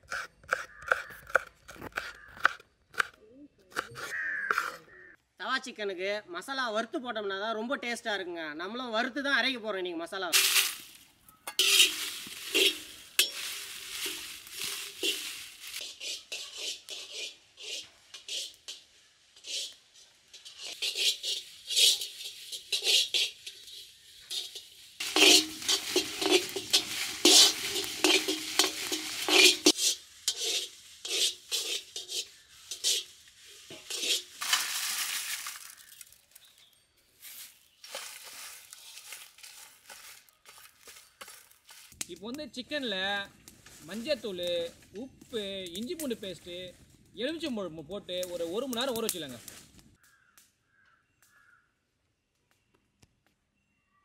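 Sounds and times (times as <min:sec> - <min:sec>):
spoon scraping in metal pan: 0:10.4 - 0:35.9.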